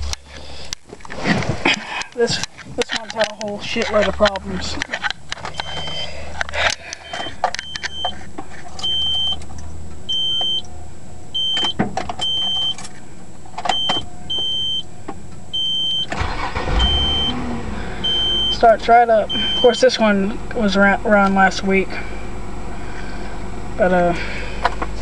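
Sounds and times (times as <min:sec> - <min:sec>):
car engine cranking and starting: 0:00.0 - 0:25.0
car warning chime beeping: 0:05.5 - 0:06.1, 0:06.8 - 0:08.2, 0:08.8 - 0:12.8, 0:13.7 - 0:14.9, 0:15.5 - 0:20.0.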